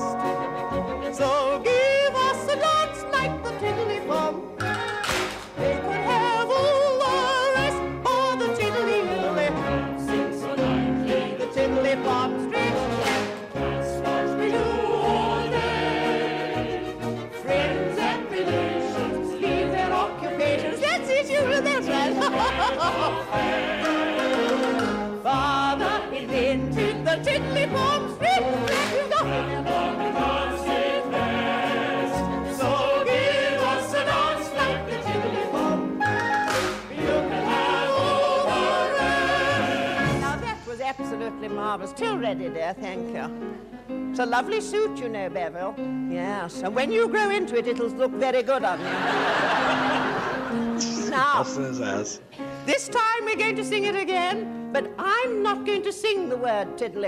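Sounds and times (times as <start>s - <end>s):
piano accompaniment: 0.0s - 57.0s
operatic singing in a high voice: 0.9s - 4.8s, 5.6s - 40.7s.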